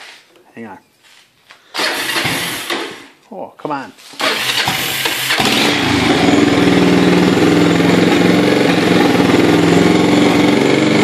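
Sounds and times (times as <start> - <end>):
atv engine running: 1.8 - 2.8, 4.2 - 11.0.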